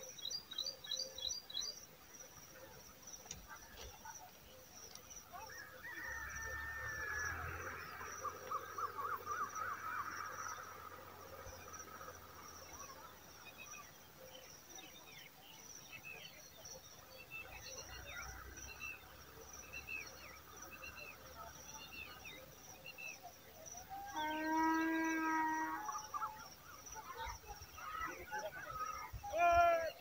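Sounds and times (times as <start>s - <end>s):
birds chirping: 0.0s - 30.0s
drawn-out bird call: 5.5s - 13.8s
high insect whine: 23.7s - 27.4s.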